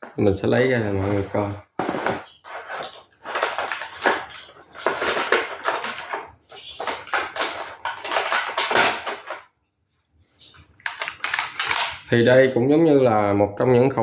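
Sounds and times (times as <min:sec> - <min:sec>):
plastic bag rustling: 0:00.6 - 0:09.5
cardboard insert crinkling: 0:00.8 - 0:09.4.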